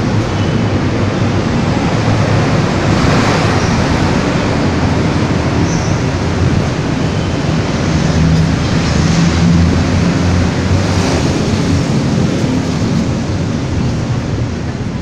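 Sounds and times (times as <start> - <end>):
road traffic rumble: 0.0 - 15.0
wind noise on microphone: 0.0 - 15.0.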